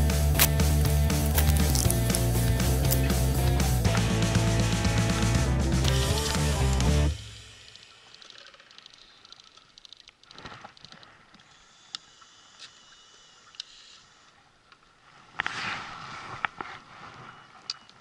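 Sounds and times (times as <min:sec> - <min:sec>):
reel clicks: 0:05.9 - 0:14.9.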